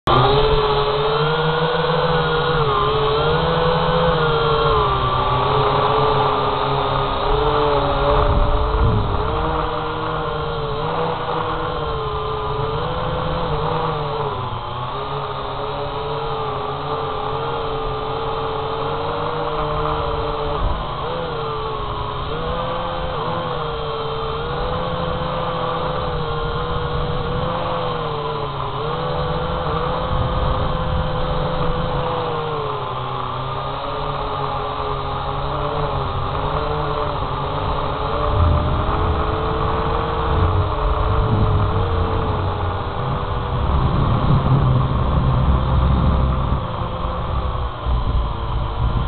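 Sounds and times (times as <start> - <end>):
drone propellers whining: 0.0 - 49.0
low rumble: 37.7 - 49.0.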